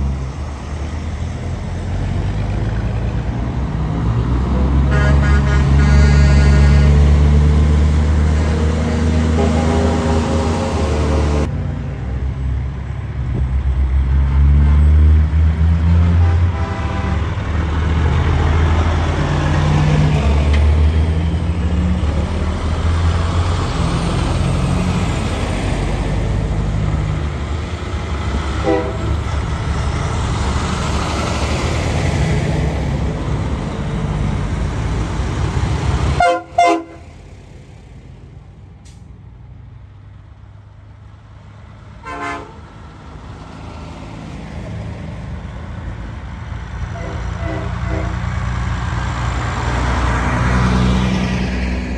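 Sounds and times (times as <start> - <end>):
truck diesel engines rumbling: 0.0 - 51.9
truck horn toots: 4.6 - 7.3, 9.2 - 11.1, 16.1 - 17.4, 28.6 - 29.2, 36.2 - 37.1, 42.0 - 42.6, 46.9 - 48.3
loud horn blast: 4.6 - 7.4, 8.2 - 11.5, 16.0 - 17.5, 28.6 - 29.3, 36.2 - 37.1, 42.0 - 42.6, 46.9 - 48.3.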